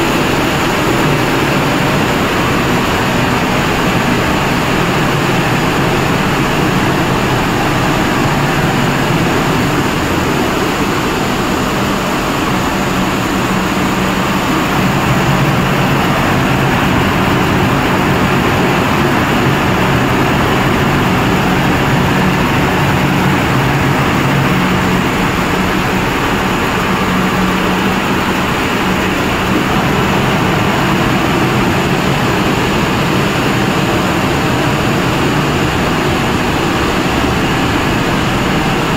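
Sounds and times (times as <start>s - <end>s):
production line machinery drone: 0.0s - 38.9s.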